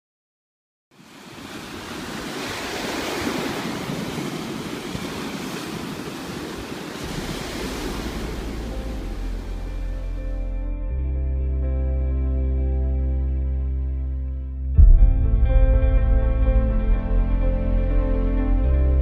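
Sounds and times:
ocean surf washing up: 0:00.9 - 0:10.6
low music drone: 0:07.1 - 0:19.0.

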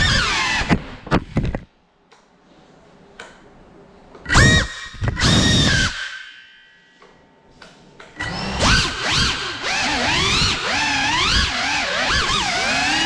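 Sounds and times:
quadcopter motors whining: 0:08.2 - 0:13.0.

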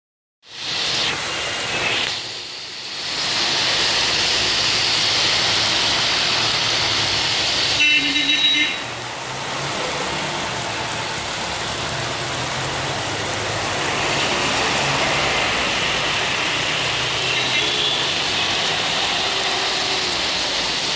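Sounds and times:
heavy rain hissing: 0:00.4 - 0:20.9
tyres swishing through water: 0:00.5 - 0:20.9
vehicle horn: 0:07.8 - 0:08.9, 0:17.2 - 0:18.2.

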